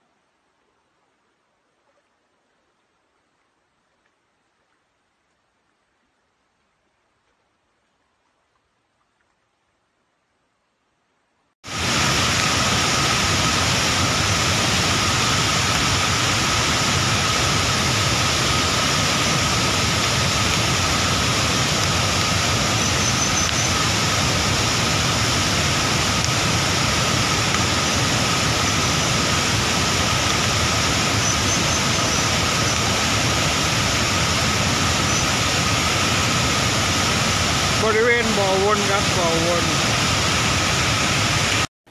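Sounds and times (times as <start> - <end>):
river water rushing over rocks: 11.7 - 41.7.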